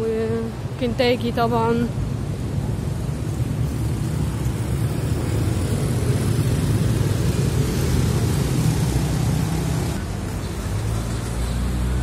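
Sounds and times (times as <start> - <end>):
motorcycles and cars passing: 0.0 - 12.0
tyre hiss on wet road: 2.8 - 12.0.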